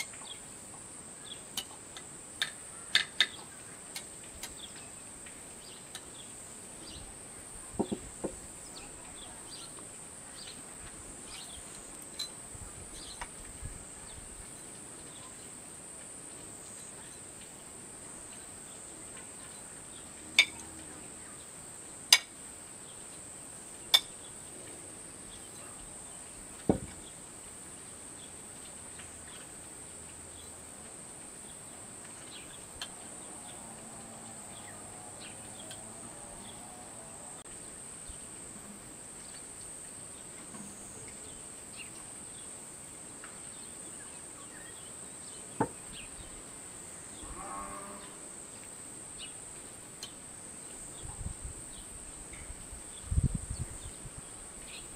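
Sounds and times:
crickets chirring: 0.0 - 54.9.

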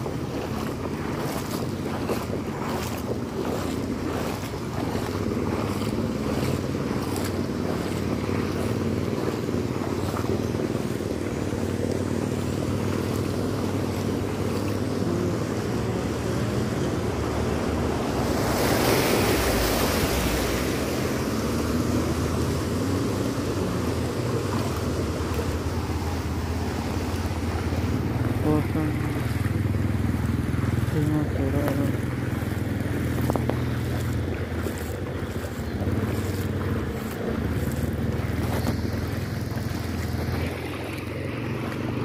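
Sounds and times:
vehicle engine hum: 0.0 - 42.0
water sloshing: 0.0 - 42.0.

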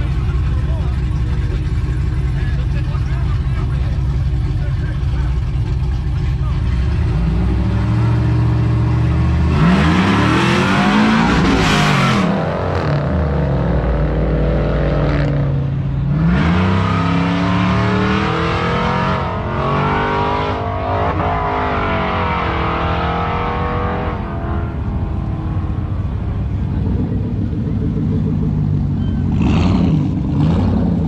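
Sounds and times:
engines revving hard: 6.4 - 28.6, 29.2 - 31.0.

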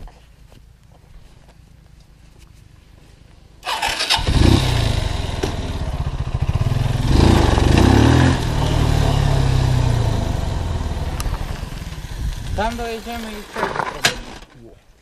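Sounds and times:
small motorcycle engine revving: 3.6 - 14.0.

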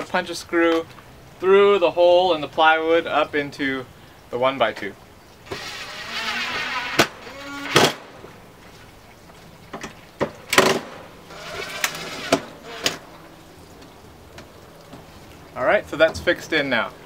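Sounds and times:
cordless drill whirring: 5.5 - 7.9.

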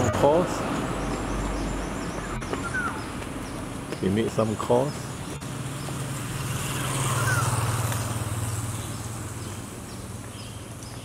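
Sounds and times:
vehicle engine hum passing: 0.0 - 11.0.

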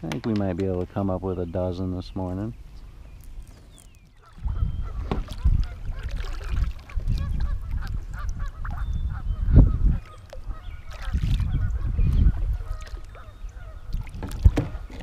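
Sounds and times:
paddle strokes splashing in water: 3.2 - 8.8, 10.0 - 15.0.

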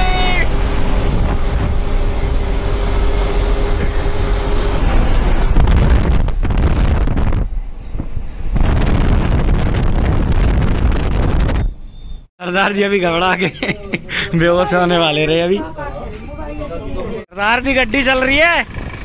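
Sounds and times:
truck engine rumble: 0.0 - 12.3, 17.4 - 19.0
road noise: 0.0 - 19.0
wind buffeting microphone: 0.5 - 11.8.

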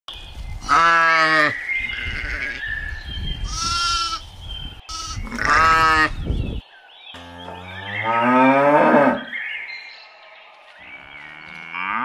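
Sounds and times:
sheep bleating: 0.6 - 2.6, 3.4 - 4.2, 4.9 - 6.2.

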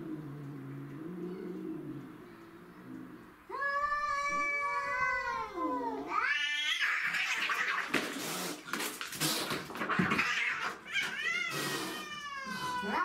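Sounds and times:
cat growling: 0.0 - 7.9
cat yowling and screeching: 3.5 - 7.9, 10.0 - 13.0
cat hissing: 6.1 - 13.0.

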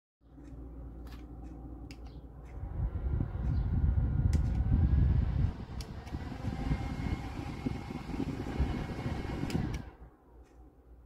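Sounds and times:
faint motor whine: 0.2 - 10.8
desk fan airflow rumble: 0.3 - 11.0
light clicks: 0.4 - 2.6.

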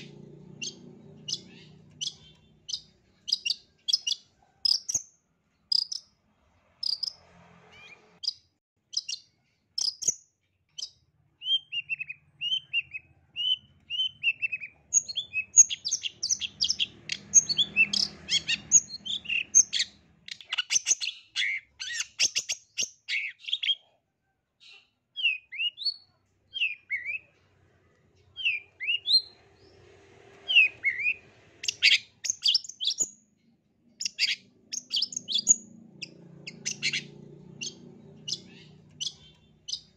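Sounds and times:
bird singing chirps and whistles: 0.6 - 5.0, 7.8 - 10.2, 10.8 - 23.8, 25.2 - 27.3, 28.4 - 29.4, 30.5 - 33.2, 34.0 - 39.9.

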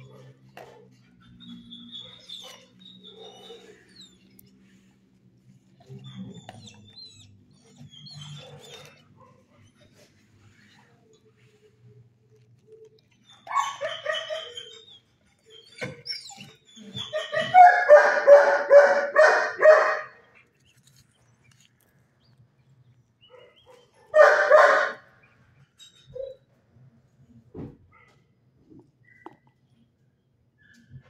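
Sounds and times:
dog barking: 17.2 - 20.2, 23.3 - 25.1.

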